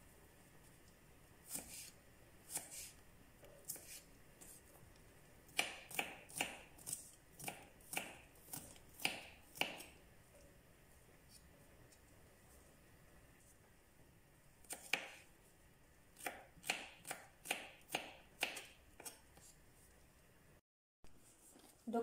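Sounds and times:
knife cutting garlic: 1.4s - 3.0s, 3.6s - 4.6s, 5.5s - 10.0s, 14.6s - 15.3s, 16.2s - 19.5s.

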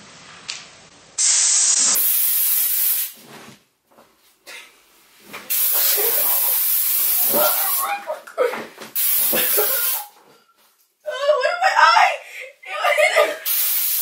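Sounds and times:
aerosol can spraying: 1.2s - 3.2s, 5.5s - 7.9s, 9.0s - 10.1s, 13.4s - 14.0s.

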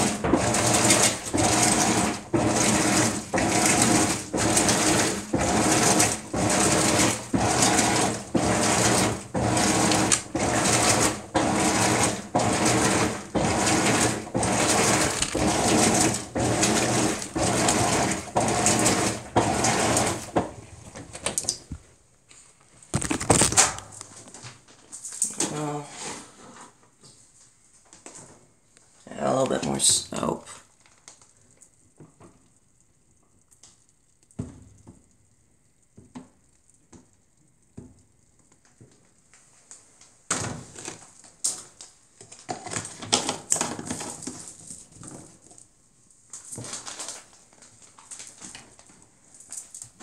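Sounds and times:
washing machine swishing: 0.0s - 21.0s.

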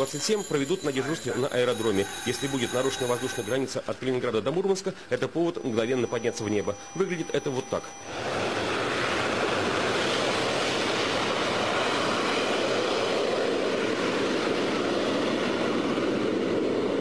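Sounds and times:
jet engines on afterburner: 7.4s - 17.0s.

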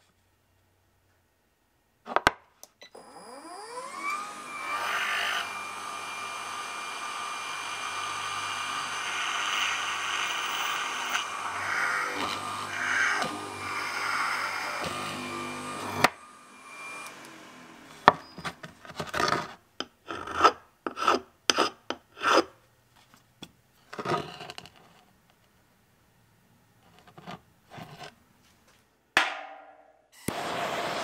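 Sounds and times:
drill press running: 3.0s - 18.6s.

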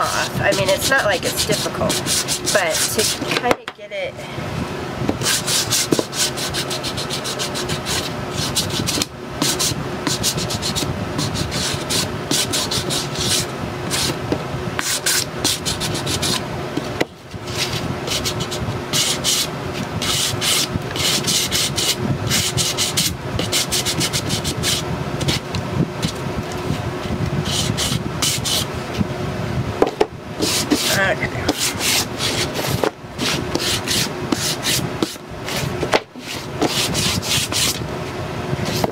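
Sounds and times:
sanding block rasping on wood: 0.1s - 3.3s, 5.2s - 14.2s, 14.8s - 16.4s, 17.4s - 25.4s, 27.4s - 28.7s, 30.4s - 37.8s.

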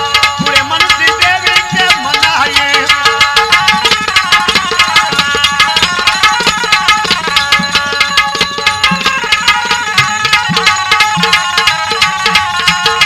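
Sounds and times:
hand drum quick steady rhythm: 0.0s - 13.0s.

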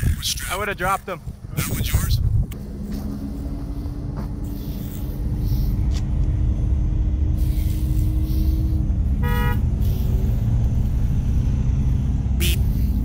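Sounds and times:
trucks idling: 0.0s - 13.0s
wind buffeting microphone: 0.0s - 13.0s.

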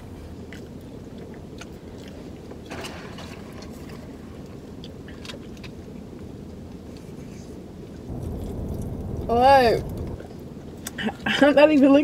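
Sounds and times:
car idling rumble: 8.1s - 10.3s.

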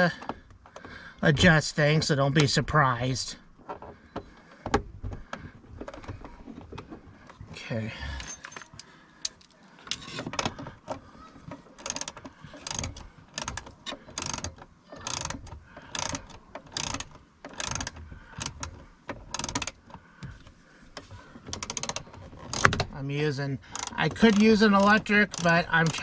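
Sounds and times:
ratchet wrench clicking: 11.8s - 13.6s, 14.2s - 18.7s, 19.3s - 19.8s, 21.6s - 22.8s, 23.7s - 26.0s.

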